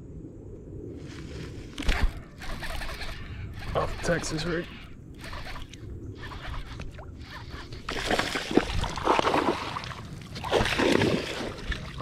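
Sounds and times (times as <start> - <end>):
water splashing against kayak: 5.4 - 12.0.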